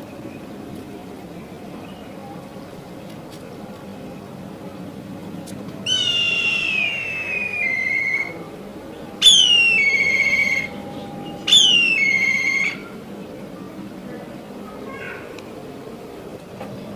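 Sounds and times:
bird of prey whistled calls: 0:05.9 - 0:08.4, 0:09.2 - 0:13.0.

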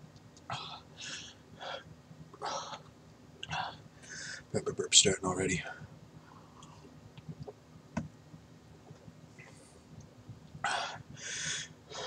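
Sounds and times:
man breathing hard: 0:00.5 - 0:04.5, 0:10.6 - 0:12.0.

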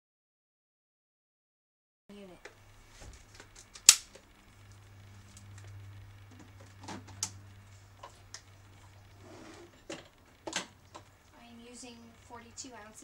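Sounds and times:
low steady hum: 0:02.1 - 0:13.0
plastic parts clicking and knocking: 0:09.8 - 0:11.1.

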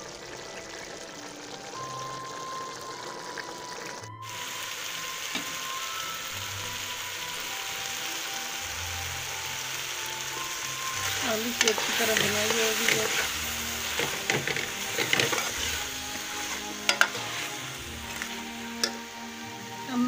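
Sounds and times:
curry sizzling and bubbling in a pot: 0:00.0 - 0:20.0
soft background music: 0:00.0 - 0:20.0.

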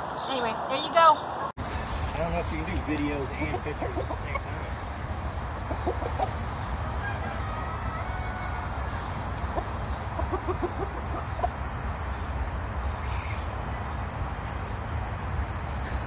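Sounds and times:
rooster clucking: 0:01.6 - 0:12.4
high insect drone: 0:01.6 - 0:16.0.

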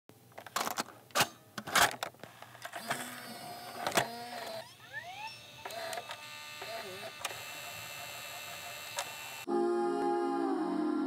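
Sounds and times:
plastic clicks of cassette: 0:00.4 - 0:04.6
cassette motor hum: 0:02.3 - 0:09.5
motor whine rising in pitch: 0:02.8 - 0:09.6.

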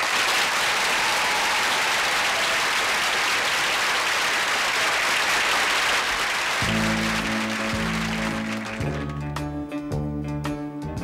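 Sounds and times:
audience applauding: 0:00.0 - 0:09.3
band playing sustained chords: 0:06.6 - 0:09.6.

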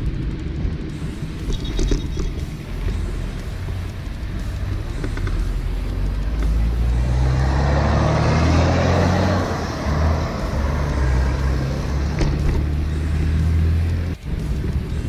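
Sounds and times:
motor vehicle passing: 0:00.0 - 0:15.0
steady low rumble: 0:00.0 - 0:15.0.

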